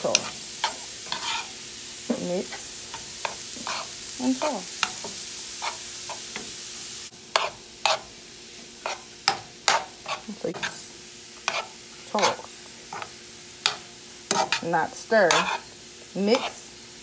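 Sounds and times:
metal utensil scraping a pan: 0:00.0 - 0:01.6, 0:02.2 - 0:06.5, 0:07.3 - 0:08.1, 0:08.8 - 0:15.7
food sizzling in a frying pan: 0:00.0 - 0:17.0.

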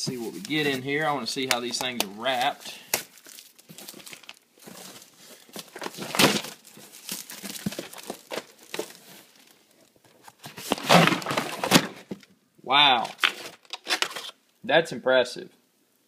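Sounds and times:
plastic wrap crinkling and tearing: 0:00.1 - 0:12.1, 0:13.0 - 0:14.4.

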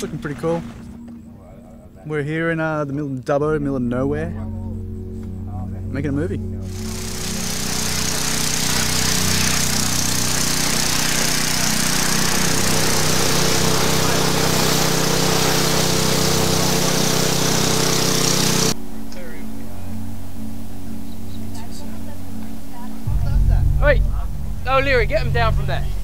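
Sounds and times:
high-pressure water hose spraying: 0:06.7 - 0:18.8
small pump engine running: 0:06.7 - 0:18.8.

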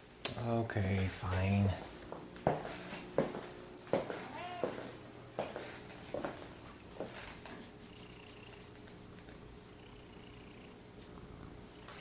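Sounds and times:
cat purring: 0:06.8 - 0:12.0.

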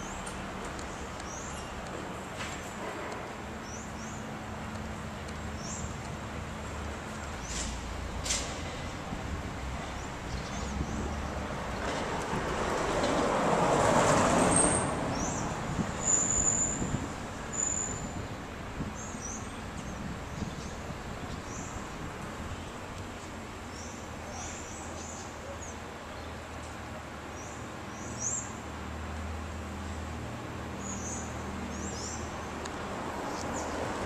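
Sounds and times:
traffic hum: 0:00.0 - 0:34.0
vehicle passing: 0:07.5 - 0:17.4.

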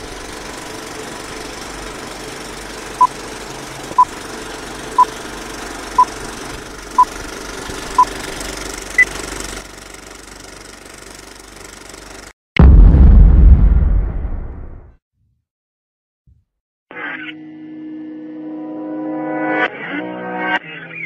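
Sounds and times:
film projector rattle: 0:00.0 - 0:12.3
loud low hit: 0:12.6 - 0:14.9.

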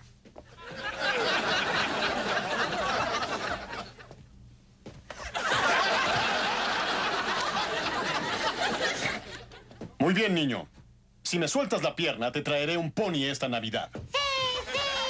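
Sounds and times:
studio audience laughing: 0:00.6 - 0:04.1, 0:05.1 - 0:09.8.

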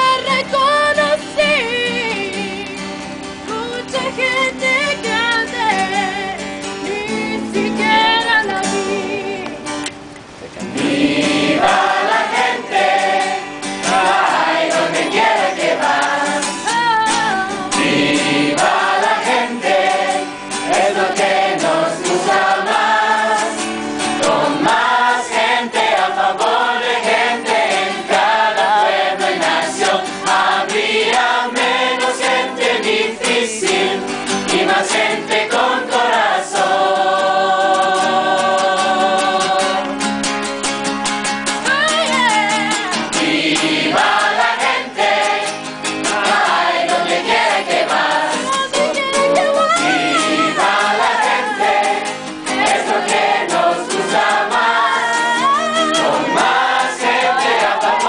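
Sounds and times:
acoustic guitar: 0:00.0 - 0:58.0
young choir singing: 0:07.2 - 0:09.6, 0:10.6 - 0:39.9, 0:43.1 - 0:58.0.

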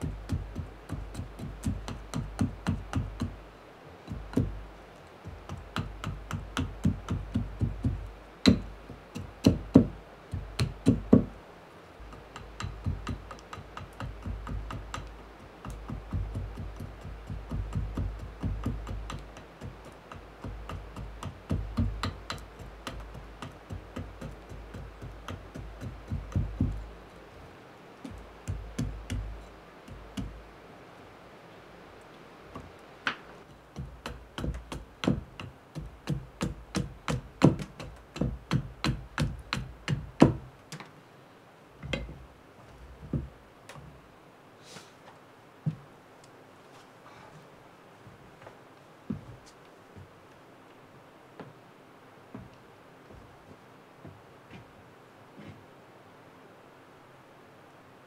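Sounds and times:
axe chopping wood: 0:05.3 - 0:11.3, 0:12.0 - 0:27.0, 0:33.1 - 0:40.5.

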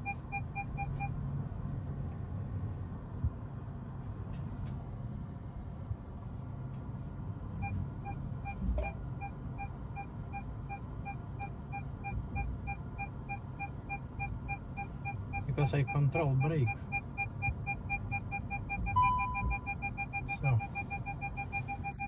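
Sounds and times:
parking sensor beeps: 0:00.0 - 0:01.2, 0:07.6 - 0:22.0
low car cabin hum: 0:00.0 - 0:22.0.

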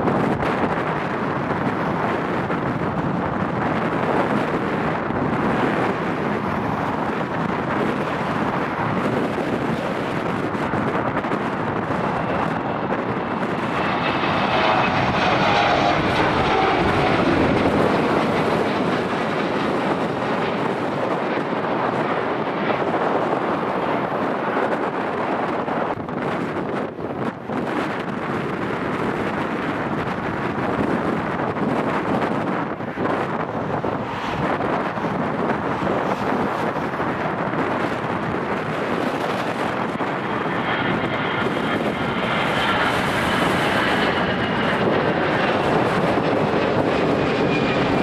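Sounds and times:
jet engines roaring: 0:00.0 - 0:48.0
jet whine falling in pitch: 0:11.8 - 0:20.9.

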